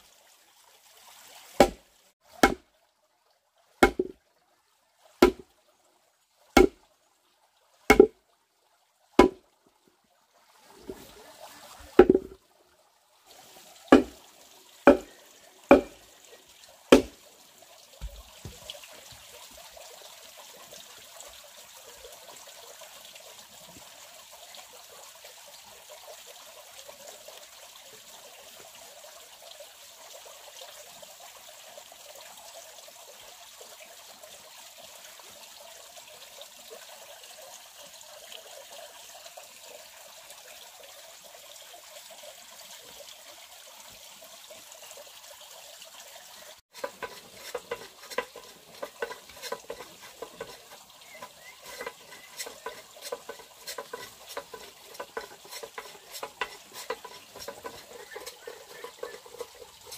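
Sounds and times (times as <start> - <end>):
water trickling: 0.0 - 59.9
tool knocking on wood: 3.8 - 4.1, 5.2 - 5.4, 7.9 - 8.1, 9.2 - 9.4, 12.0 - 12.4, 14.0 - 14.2, 14.9 - 15.1, 15.7 - 16.0, 16.9 - 17.1, 46.8 - 59.5.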